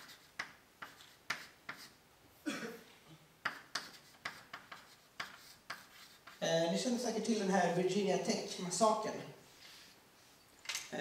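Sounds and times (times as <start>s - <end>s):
chalk tapping on blackboard: 0.0s - 2.0s, 3.4s - 6.4s.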